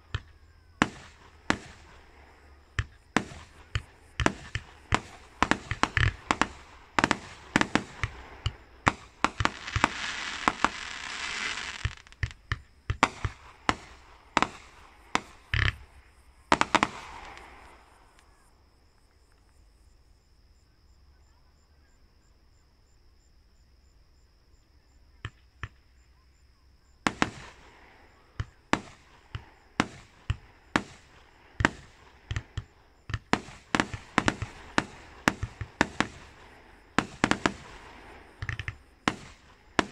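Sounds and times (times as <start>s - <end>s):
fireworks bangs and bursts: 0.0s - 18.3s, 27.0s - 39.9s
fireworks hissing crackle: 0.0s - 18.4s, 27.1s - 39.9s.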